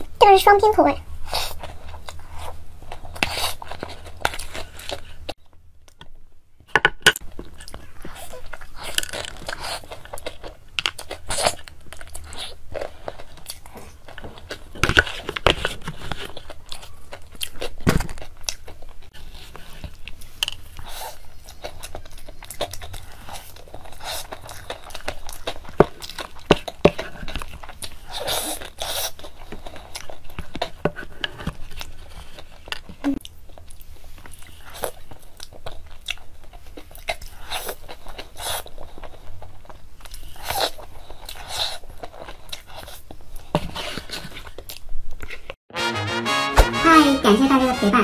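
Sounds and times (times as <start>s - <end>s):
chewing and mouth smacks: 7.4s - 30.8s, 31.7s - 43.5s.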